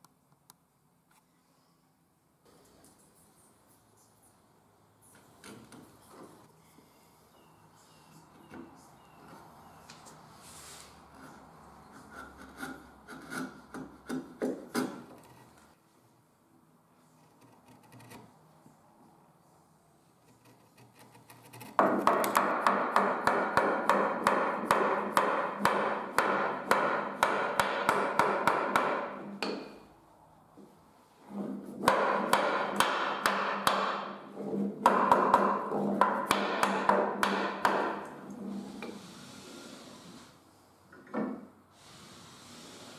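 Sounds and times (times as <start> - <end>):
wooden mallet striking wood: 21.8 - 29.8, 31.8 - 34.2, 34.8 - 38.0.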